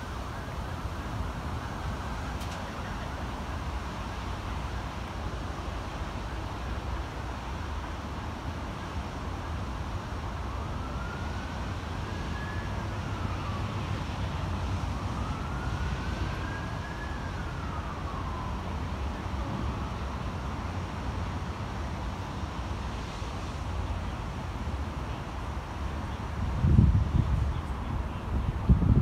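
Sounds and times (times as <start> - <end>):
faint emergency siren wailing: 0.0 - 29.0
wind buffeting microphone: 26.4 - 29.0.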